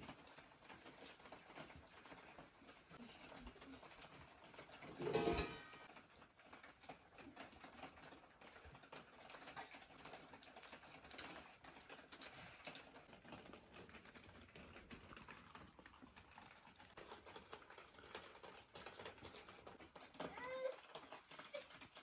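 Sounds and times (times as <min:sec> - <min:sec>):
small clicks and rustles: 0:00.0 - 0:22.0
soft chewing: 0:05.8 - 0:22.0.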